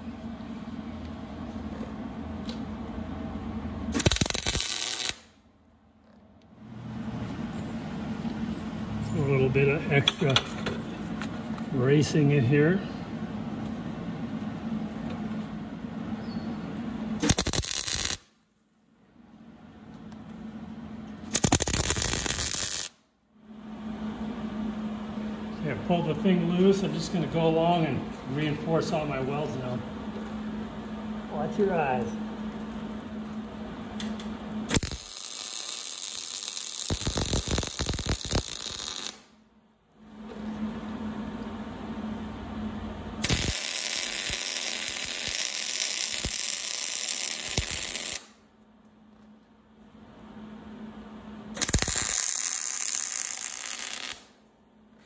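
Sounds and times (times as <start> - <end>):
steady low hum: 0.0 - 55.0
welding arc crackling: 3.9 - 5.4, 17.1 - 18.4, 21.2 - 23.0, 34.1 - 39.3, 43.2 - 48.4, 51.5 - 54.4.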